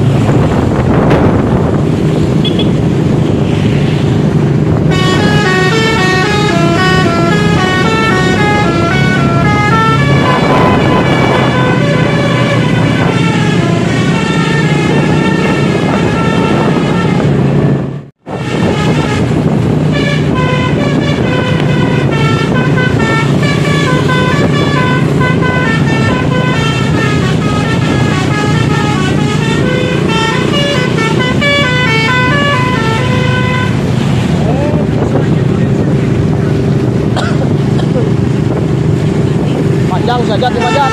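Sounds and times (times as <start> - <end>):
engine hum: 0.0 - 40.9
multi-tone air horn melody: 4.9 - 33.9, 40.5 - 40.9.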